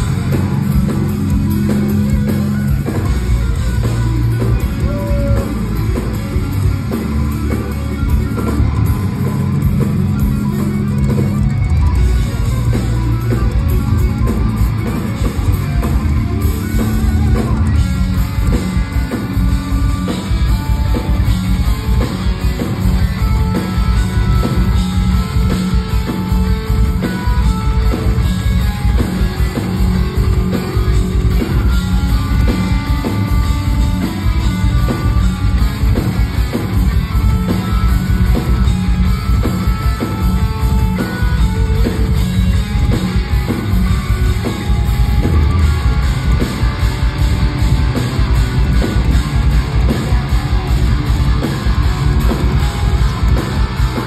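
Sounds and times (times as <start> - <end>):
drum kit playing: 0.0 - 54.0
electric guitar: 0.0 - 54.0.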